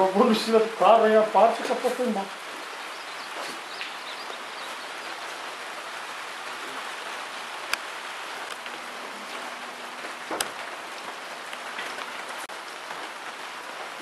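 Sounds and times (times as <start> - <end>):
steady rain hissing: 0.0 - 14.0.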